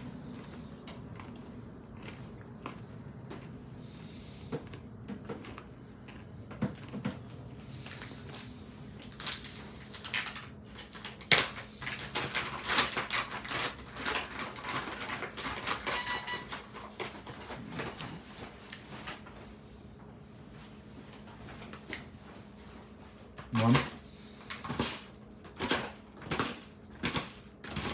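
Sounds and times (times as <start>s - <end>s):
paper and plastic bags rustling: 7.7s - 19.6s.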